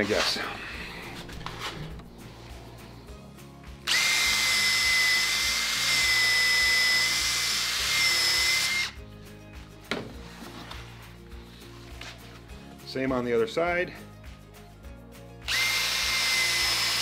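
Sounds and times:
cordless drill whining: 0:03.8 - 0:09.0, 0:15.5 - 0:17.0.

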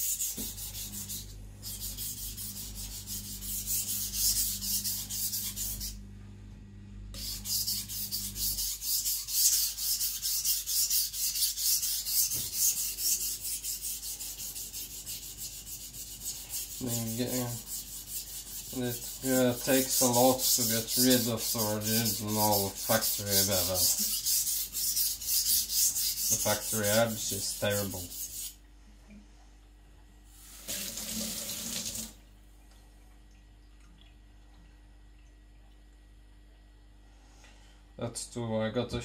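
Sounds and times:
knife rasping on whetstone: 0:00.0 - 0:06.0, 0:07.2 - 0:28.6.

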